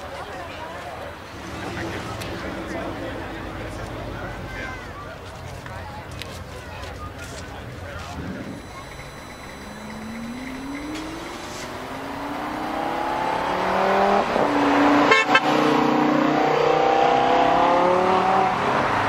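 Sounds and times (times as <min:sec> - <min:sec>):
exhaust crackle: 0:08.0 - 0:14.5
sports car engine accelerating: 0:08.1 - 0:19.0.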